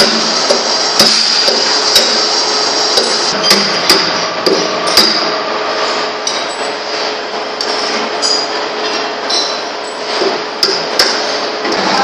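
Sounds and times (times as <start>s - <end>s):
hammer striking metal: 0.0s - 2.2s, 3.0s - 5.4s, 10.6s - 11.2s.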